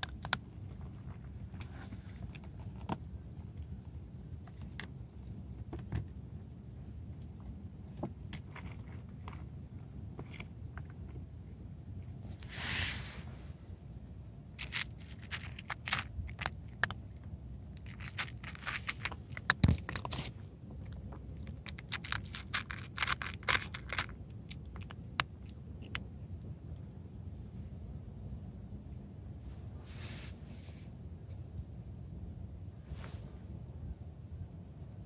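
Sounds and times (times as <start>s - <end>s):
cat crunching dry kibble: 0.0s - 6.0s, 7.0s - 12.5s, 14.5s - 26.9s.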